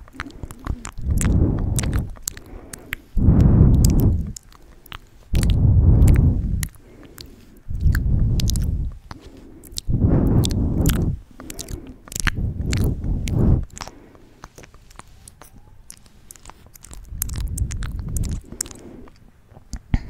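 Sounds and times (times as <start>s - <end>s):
wet mouth clicks and smacks: 0.0s - 20.0s
low rushes of noise: 0.4s - 4.5s, 5.3s - 13.9s, 16.8s - 19.2s.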